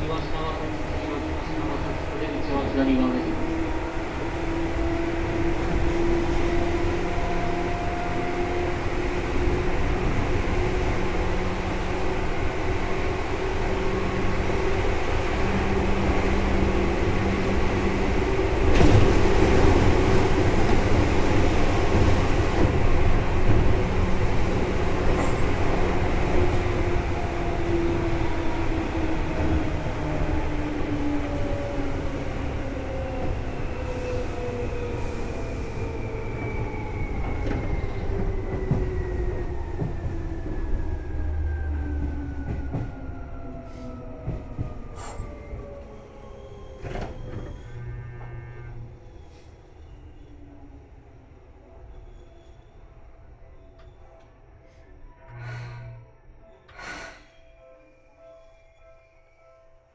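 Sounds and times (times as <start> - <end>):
train motor whine: 55.3 - 57.3.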